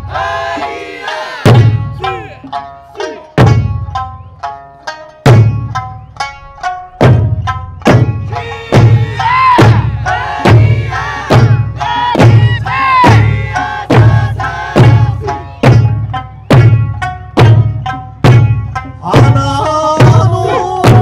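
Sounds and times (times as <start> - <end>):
large barrel drums beating: 0.0 - 4.6, 5.2 - 21.0
plucked lute notes: 1.5 - 10.8, 13.2 - 21.0
person singing: 19.0 - 21.0.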